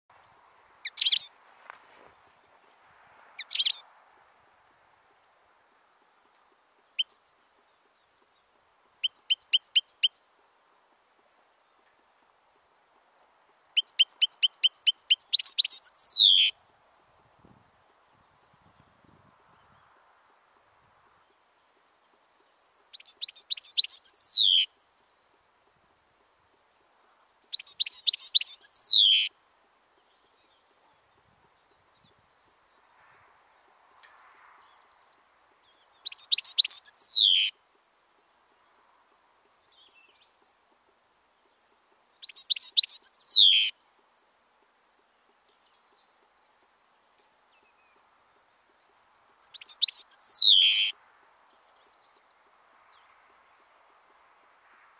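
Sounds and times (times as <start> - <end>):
goldfinch twittering song: 0.2 - 1.3, 3.4 - 3.9, 6.8 - 10.3, 13.8 - 16.6, 21.2 - 25.4, 27.4 - 29.3, 33.7 - 38.1, 39.5 - 44.3, 44.9 - 51.0.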